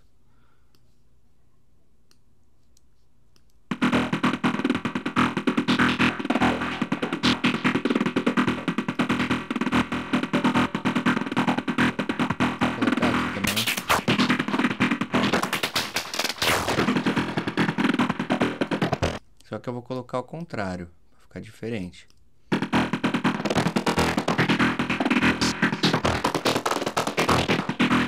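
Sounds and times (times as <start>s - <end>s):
fast pulsing synth sequence: 3.7s - 19.2s, 22.5s - 28.0s.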